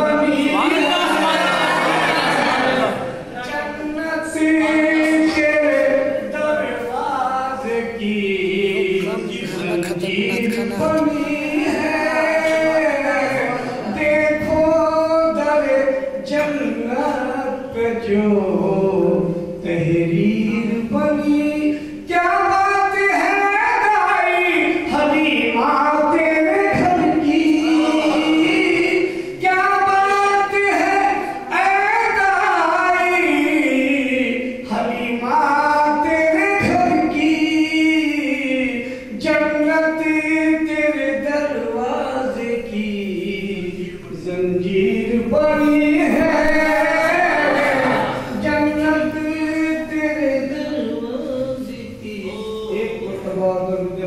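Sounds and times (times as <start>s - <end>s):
man singing unaccompanied: 0.0s - 2.0s, 3.4s - 54.0s
man chanting melodically: 0.0s - 54.0s.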